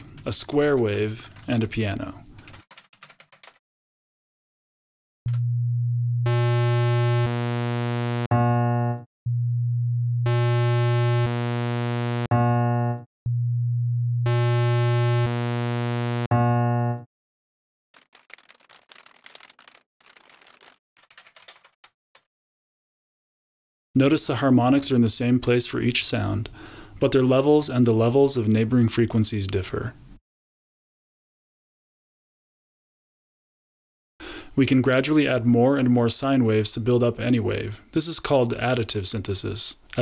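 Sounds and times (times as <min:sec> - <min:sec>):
faint computer keyboard typing: 0:00.0 - 0:03.6, 0:18.0 - 0:22.3
sine wave tone: 0:05.3 - 0:17.1
buzzy square wave tone: 0:06.2 - 0:09.0, 0:10.2 - 0:13.0, 0:14.2 - 0:17.0
sawtooth wave tone: 0:06.2 - 0:09.6, 0:10.2 - 0:13.6, 0:14.2 - 0:16.3.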